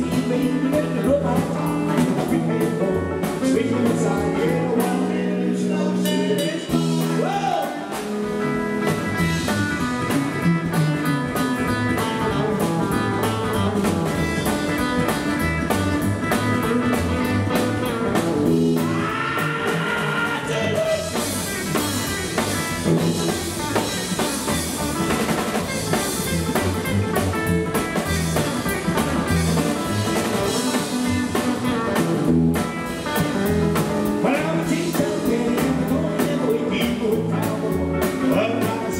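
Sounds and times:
man singing: 0.0 - 8.1, 18.8 - 21.4, 34.0 - 38.9
rockabilly band playing: 0.0 - 38.9.

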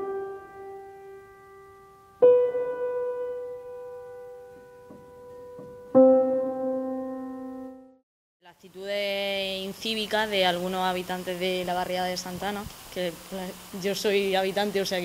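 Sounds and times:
piano playing slow chords: 0.0 - 8.0.

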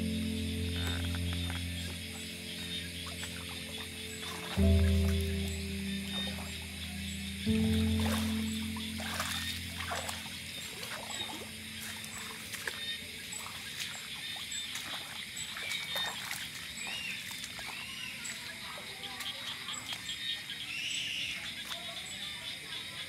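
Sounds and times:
held music tone: 0.0 - 12.7
steps through wet grass and water: 0.0 - 20.6, 21.5 - 22.1
night insects chirping: 0.0 - 23.0.

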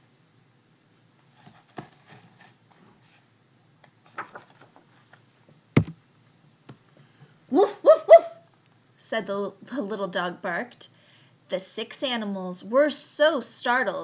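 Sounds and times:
paper rustling: 1.3 - 5.2
page turning tap: 3.8 - 4.8.

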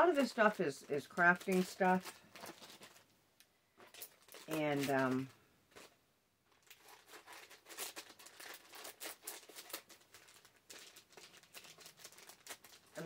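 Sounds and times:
packaging rustling and crinkling: 0.0 - 3.1, 3.7 - 13.0.

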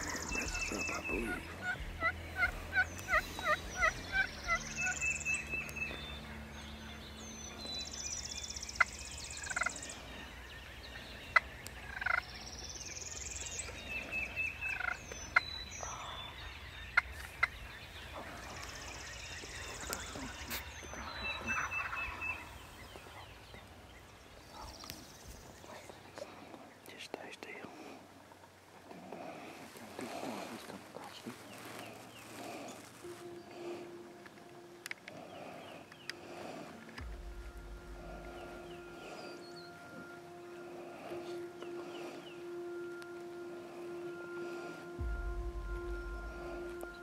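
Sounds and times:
turkey yelping: 0.0 - 6.2, 8.8 - 9.9, 11.3 - 12.4, 14.6 - 16.2, 19.7 - 23.3
songbirds calling and trilling: 0.0 - 47.0.

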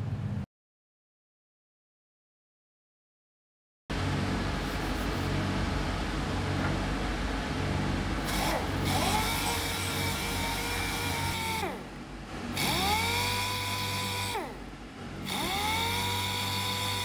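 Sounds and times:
motor whine: 3.9 - 17.0.

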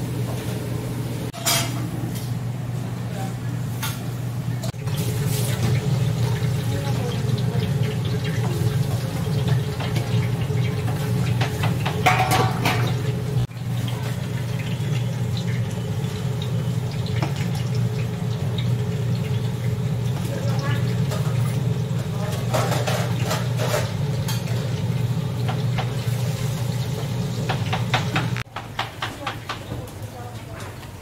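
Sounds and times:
metal utensils clinking: 1.3 - 1.9, 11.9 - 13.0.

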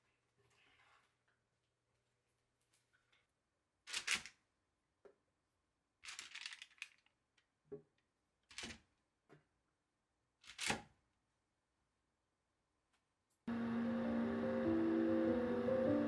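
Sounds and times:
paper rustling: 6.0 - 7.1.

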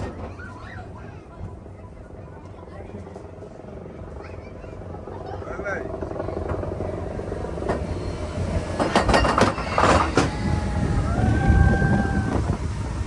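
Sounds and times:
roller coaster rumbling on track: 0.0 - 13.0
high wheel squeal: 7.7 - 12.6
sharp track clacks: 8.7 - 10.4.

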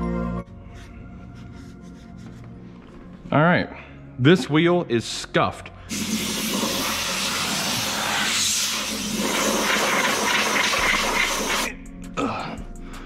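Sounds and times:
compressed air blow gun hissing: 5.9 - 11.7.

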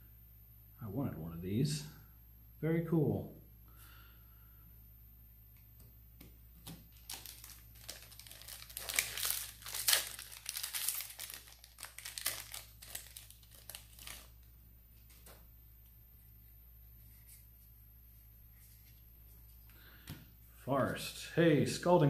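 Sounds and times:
foil wrapper crinkling and tearing: 6.7 - 14.4.

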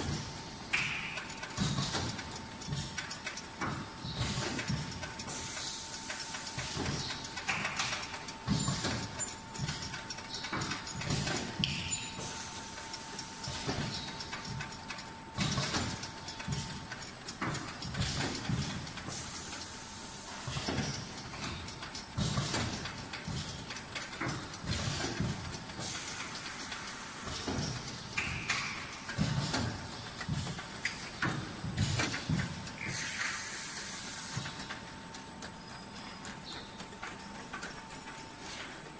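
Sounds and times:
machine knocks and clunks: 0.0 - 5.0, 6.6 - 12.3, 13.4 - 19.2, 20.5 - 26.0, 27.2 - 33.0
air hissing: 32.8 - 34.6.

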